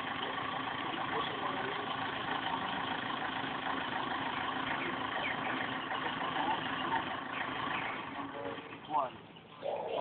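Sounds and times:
bird chirps: 7.2s - 10.0s.

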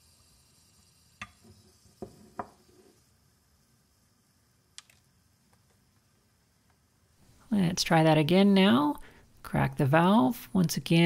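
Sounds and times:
mug knocking on wooden bench: 2.0s - 2.6s.

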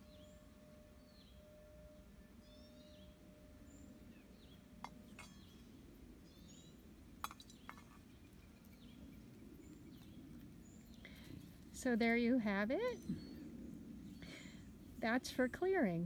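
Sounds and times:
singing bowl ringing: 0.0s - 5.9s
birds chirping: 0.0s - 16.0s
light clinks and knocks: 4.8s - 5.7s.

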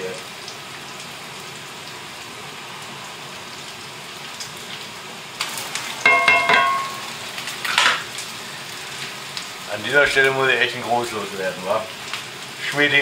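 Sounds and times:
food sizzling in a frying pan: 0.0s - 13.0s
metal tongs clinking on pan: 6.0s - 8.0s.

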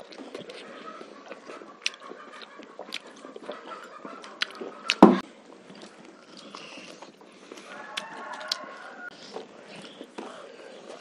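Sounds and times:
lip smacks and chewing: 0.0s - 11.0s
loud short thump: 5.0s - 5.2s.

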